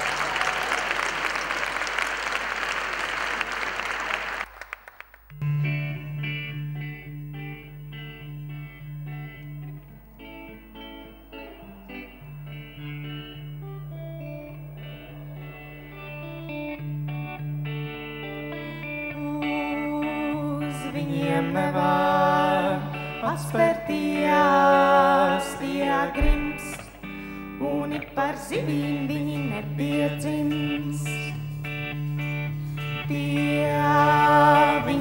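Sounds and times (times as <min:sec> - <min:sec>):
audience applauding: 0:00.0 - 0:05.4
guitar notes: 0:05.3 - 0:35.0.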